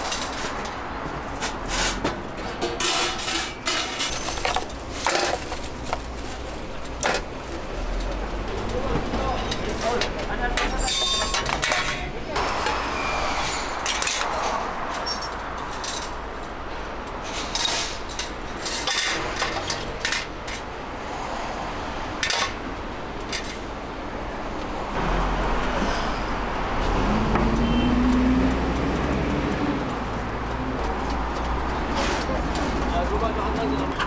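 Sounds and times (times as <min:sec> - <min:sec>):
street market background noise: 0:00.0 - 0:34.0
metal tools scraping griddle: 0:01.4 - 0:05.5, 0:09.4 - 0:16.2
low rumble: 0:12.2 - 0:15.7.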